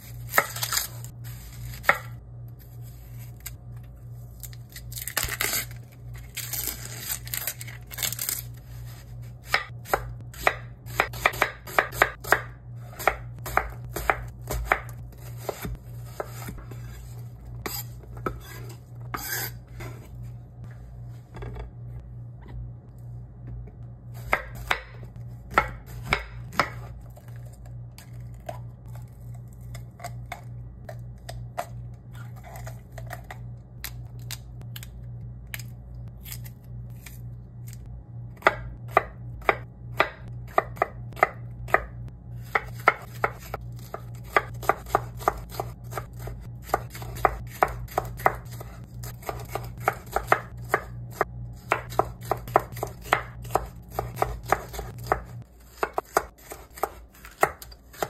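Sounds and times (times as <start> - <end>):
knife chopping on cutting board: 9.4 - 17.0, 24.2 - 27.0, 38.4 - 58.0.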